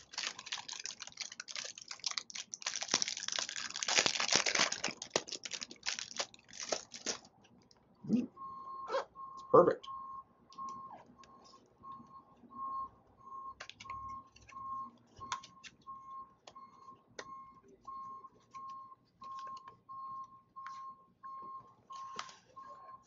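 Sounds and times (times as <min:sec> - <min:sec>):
cardboard box clicks and crinkles: 0:00.0 - 0:07.2.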